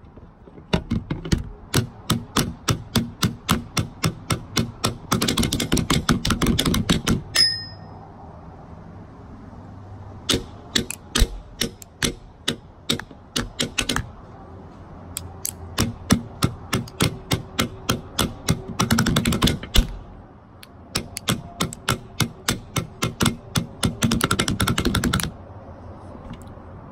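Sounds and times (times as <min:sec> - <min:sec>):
sticks drumming on plastic disc: 0:00.6 - 0:07.3, 0:15.5 - 0:19.9, 0:20.9 - 0:25.4.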